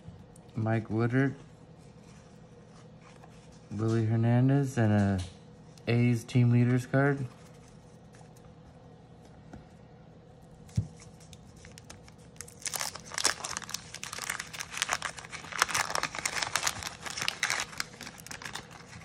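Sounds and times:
wax paper crinkling: 10.6 - 19.0.

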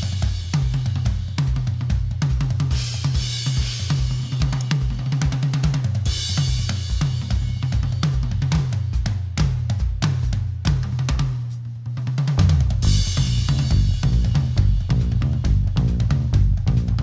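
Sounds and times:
drum kit groove: 0.0 - 17.0
steady low notes: 12.8 - 17.0.

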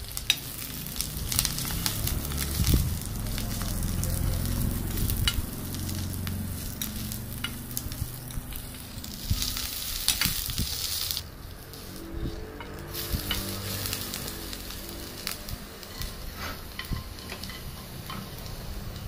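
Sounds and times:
food sizzling in hot oil: 0.0 - 19.0
metal spoon scraping pot: 11.6 - 14.3, 15.8 - 18.8.

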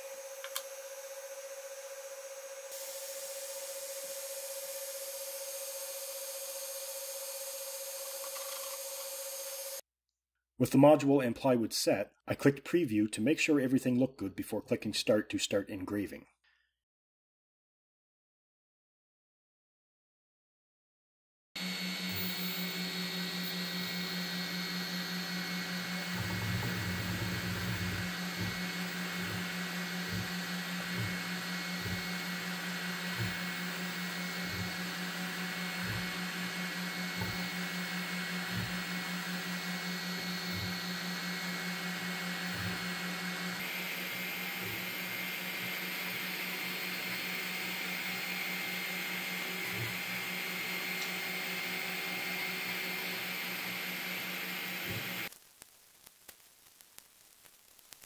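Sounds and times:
machine hum with high whine: 21.6 - 55.3.

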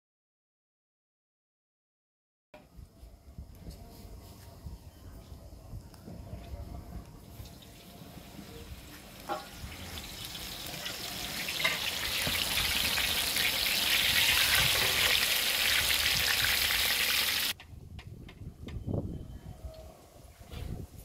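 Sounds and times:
food deep-frying in hot oil: 7.6 - 17.6.

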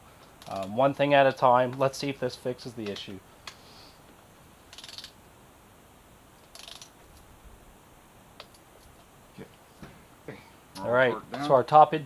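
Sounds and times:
ratchet wrench clicking: 4.7 - 5.2, 6.5 - 7.0.

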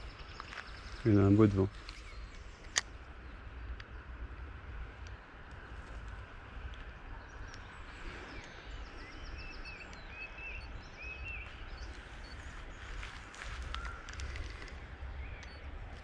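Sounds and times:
bird chirping: 0.0 - 4.0, 7.2 - 16.0
wind rumble on microphone: 0.0 - 16.0.

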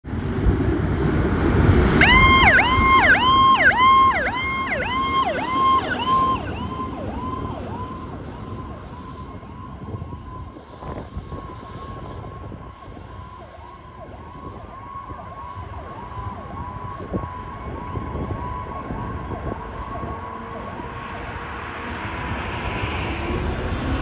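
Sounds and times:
fire engine rumble: 0.0 - 24.0
electronic siren yelping: 2.0 - 10.5.

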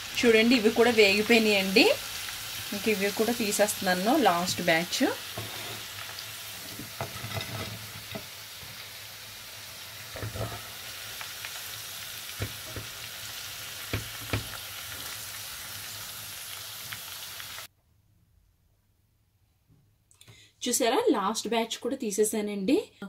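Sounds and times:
food sizzling in hot oil: 0.0 - 17.7.

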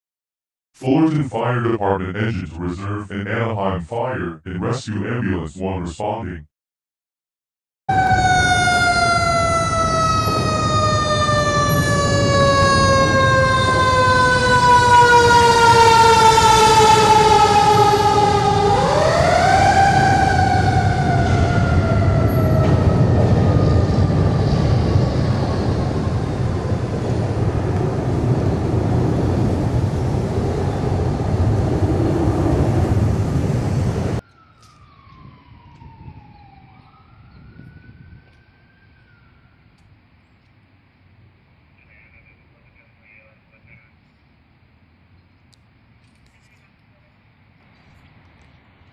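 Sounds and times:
fire engine siren wailing: 7.9 - 39.8
faint distant siren: 7.9 - 40.3
traffic rumble: 8.0 - 48.9.

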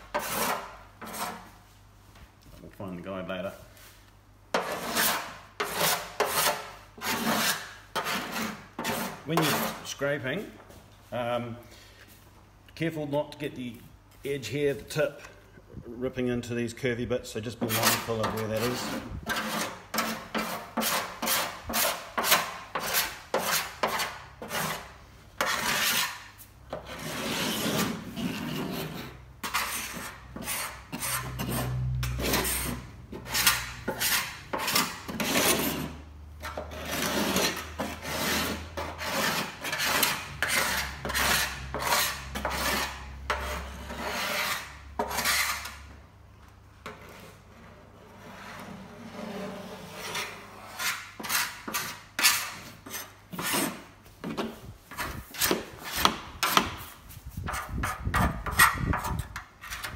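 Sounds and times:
scraper blade scraping metal: 4.6 - 9.8, 17.7 - 45.8.

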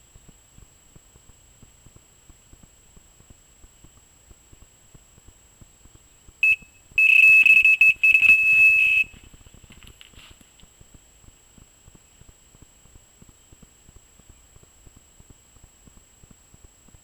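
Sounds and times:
electronic alarm beeping: 6.4 - 9.2
handling rustles and clicks: 7.4 - 10.7.

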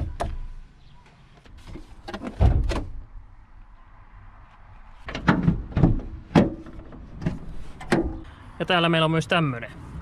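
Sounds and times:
dull knocks and thumps: 5.1 - 8.2.

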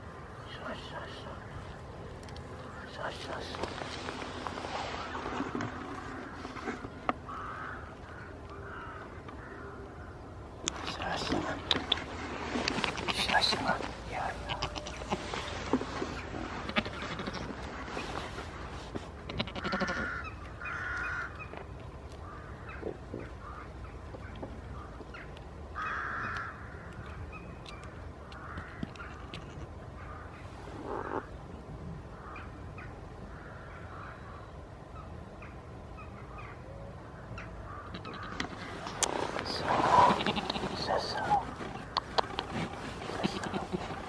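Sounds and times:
steady low rumble: 0.0 - 25.8
farm animal calls: 10.7 - 18.4, 19.3 - 21.5, 28.3 - 31.3, 37.4 - 44.0.

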